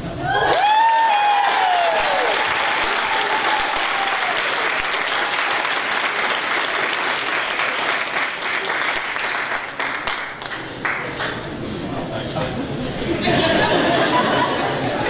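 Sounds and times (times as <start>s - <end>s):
audience applauding: 0.5s - 11.4s.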